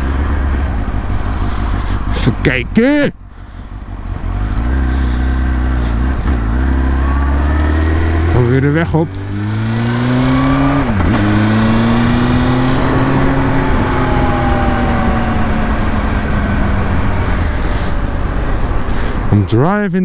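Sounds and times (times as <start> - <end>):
motorcycle engine revving: 0.0 - 2.3, 3.4 - 19.3.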